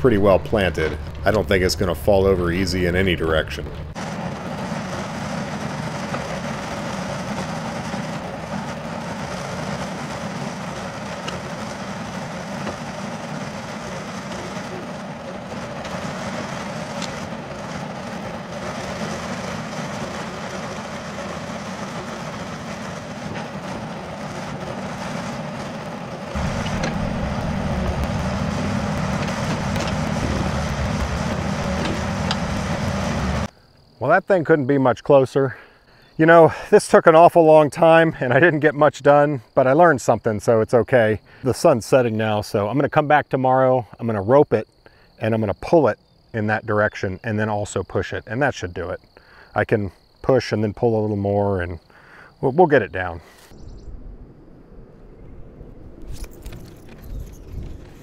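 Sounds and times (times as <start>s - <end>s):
excavator diesel engine running: 0.0s - 33.5s.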